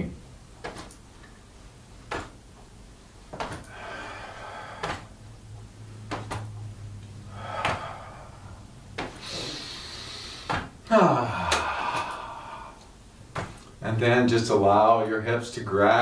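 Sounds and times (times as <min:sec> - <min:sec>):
hands slapping against torso: 0:00.6 - 0:01.0, 0:02.0 - 0:02.4, 0:03.3 - 0:03.8, 0:04.8 - 0:05.2, 0:06.0 - 0:06.6, 0:07.5 - 0:08.0, 0:08.9 - 0:09.3, 0:10.4 - 0:10.8, 0:11.4 - 0:12.2, 0:13.3 - 0:13.7.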